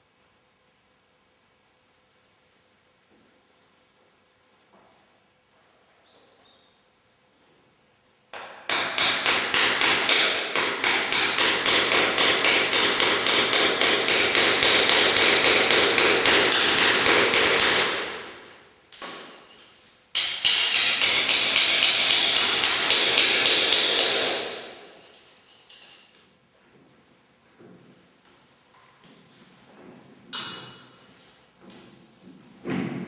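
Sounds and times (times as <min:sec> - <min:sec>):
rapid hammer strikes: 0:08.3 - 0:18.4, 0:20.2 - 0:25.0.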